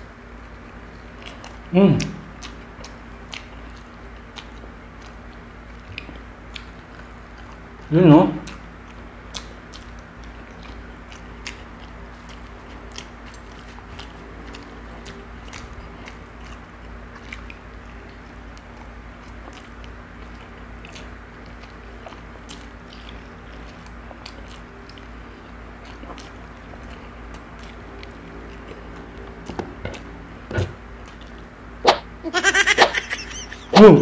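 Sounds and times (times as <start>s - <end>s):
man chewing and biting: 0.3s - 32.1s.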